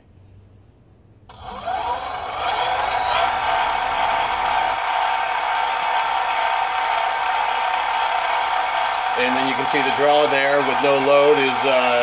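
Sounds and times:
high-pitched whine: 0:01.3 - 0:06.8
lathe mechanical whine: 0:01.3 - 0:12.0.

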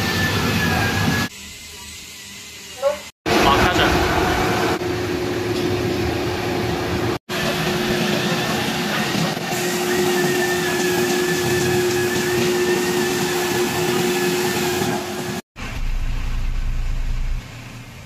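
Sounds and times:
truck hydraulics droning and whining: 0:04.1 - 0:15.4.

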